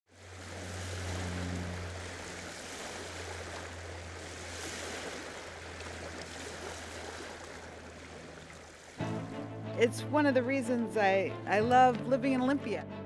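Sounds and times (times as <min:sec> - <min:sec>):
rushing water: 0:00.1 - 0:10.0
low steady hum: 0:00.2 - 0:08.8.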